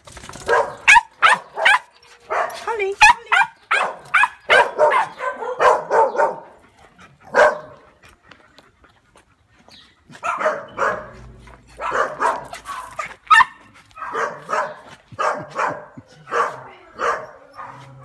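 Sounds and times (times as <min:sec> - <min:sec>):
dog barking: 0:00.4 - 0:06.5, 0:07.3 - 0:07.8, 0:10.2 - 0:11.2, 0:11.8 - 0:17.9.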